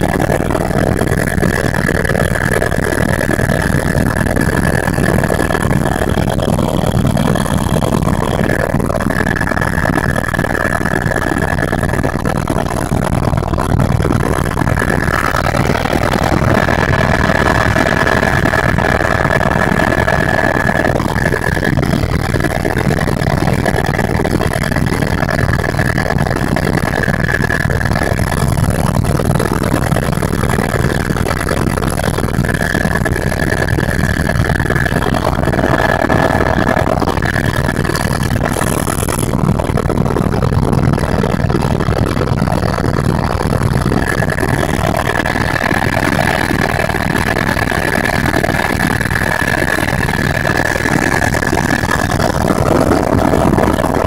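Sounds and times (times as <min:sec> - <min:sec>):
high whine: 0:00.0 - 0:24.4, 0:31.6 - 0:39.7
helicopter engine and rotor drone: 0:00.0 - 0:54.0.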